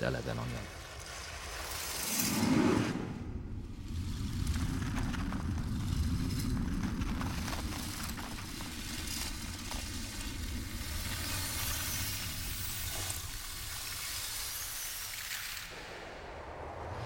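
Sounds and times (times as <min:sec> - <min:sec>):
low rumble: 0:02.3 - 0:13.8, 0:15.7 - 0:17.0
faint crackles over hiss: 0:03.8 - 0:17.0.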